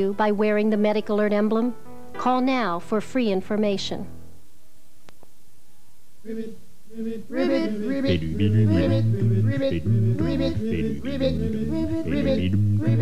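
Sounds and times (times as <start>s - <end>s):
yodel-like singing voices: 6.2s - 13.0s
steady bass line: 8.1s - 13.0s.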